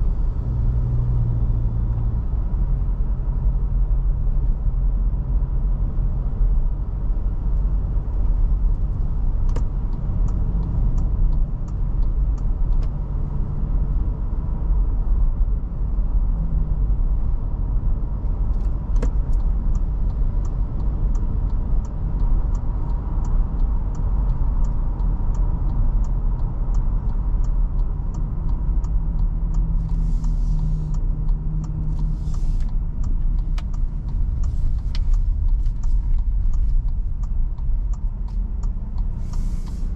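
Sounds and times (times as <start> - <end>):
car engine and road rumble: 0.0 - 39.9
light ticking: 7.6 - 13.5, 18.2 - 39.9.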